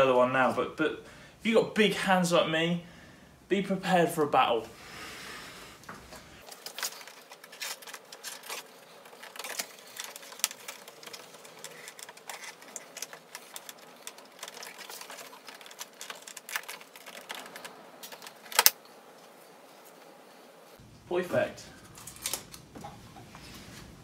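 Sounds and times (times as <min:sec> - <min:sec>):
plastic clips clicking and creaking: 0:06.4 - 0:18.8, 0:21.8 - 0:22.7.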